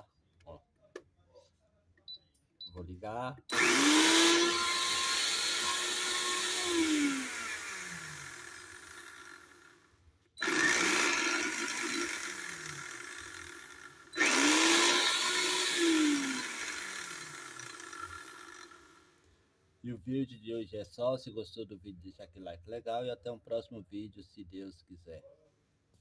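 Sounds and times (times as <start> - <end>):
blender motor running: 3.5 - 9.8, 10.4 - 19.1.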